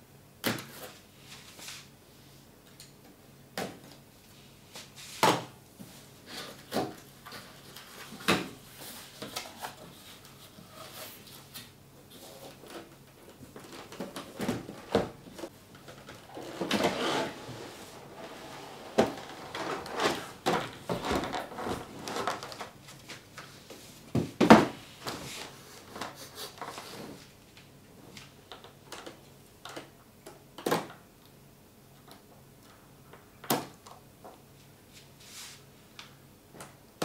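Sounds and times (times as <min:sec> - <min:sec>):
cardboard scraping and sliding: 0:16.2 - 0:22.8.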